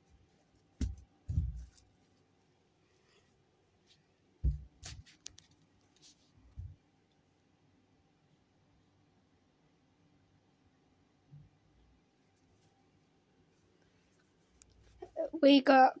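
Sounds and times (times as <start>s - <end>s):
plush toys handled thumps: 0.8s - 1.8s, 4.4s - 5.1s, 6.5s - 6.8s.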